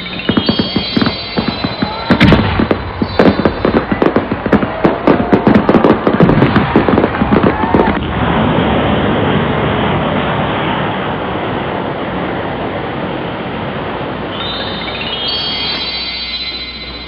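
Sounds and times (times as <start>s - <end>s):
firework whistles: 0.0s - 8.0s, 14.2s - 17.0s
fireworks crackling bangs: 0.0s - 17.0s
fireworks rushing roar: 0.0s - 17.0s.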